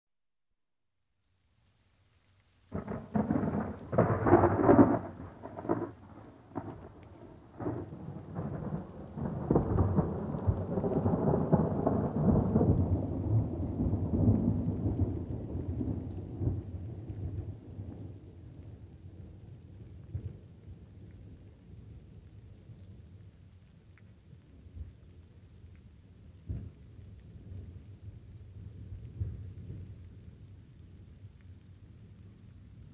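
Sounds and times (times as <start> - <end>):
light rain: 1.0 - 32.9
thunder cracks: 2.7 - 16.6
thunder rumble: 2.7 - 18.3.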